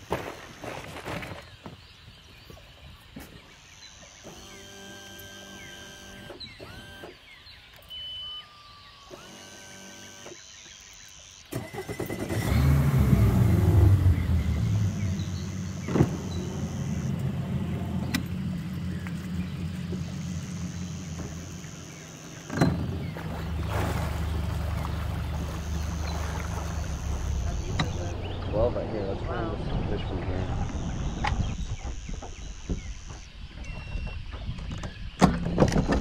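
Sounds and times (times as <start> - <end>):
outboard motor running: 12.2 - 28.6.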